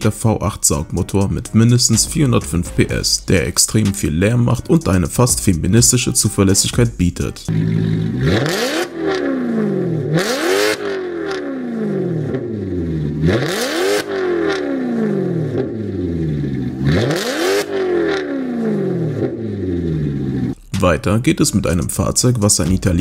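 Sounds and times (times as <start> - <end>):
car engine revving: 7.5 - 20.6.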